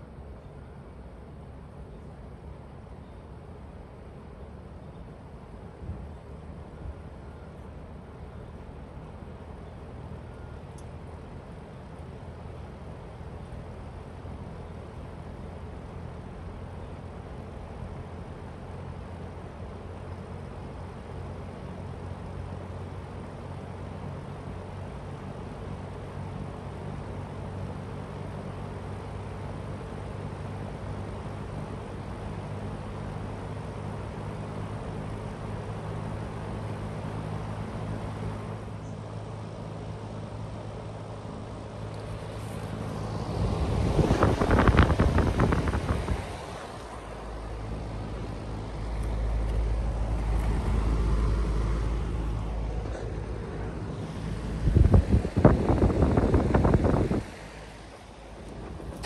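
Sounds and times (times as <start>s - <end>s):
heat pump unit humming: 34.4s - 59.0s.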